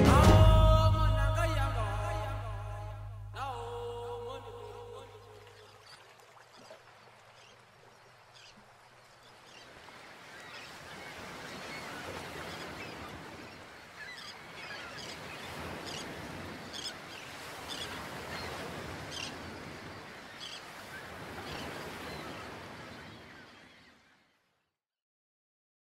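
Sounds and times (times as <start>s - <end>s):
birds calling: 4.4s - 24.2s.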